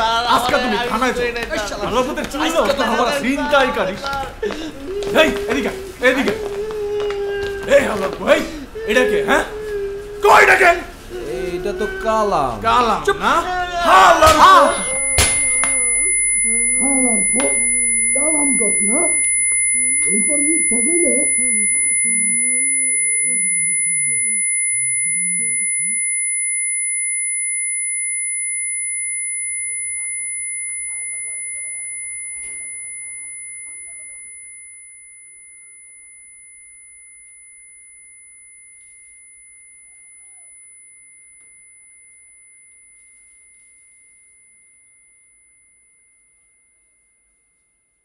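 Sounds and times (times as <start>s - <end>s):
high-pitched electronic ringing tone: 13.9s - 48.0s.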